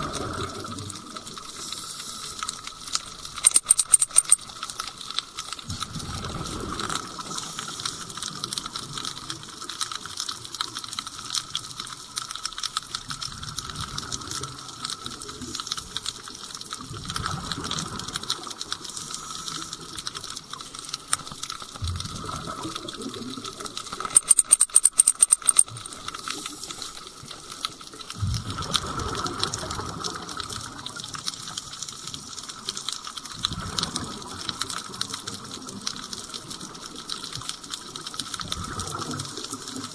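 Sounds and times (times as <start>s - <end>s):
fine underwater crackling: 0.0s - 39.9s
loud sharp clicks: 3.4s - 4.4s, 24.0s - 25.8s.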